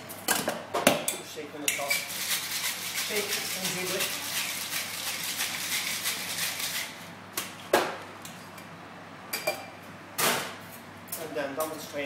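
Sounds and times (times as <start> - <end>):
ice rattling in cocktail shaker: 2.0 - 7.0.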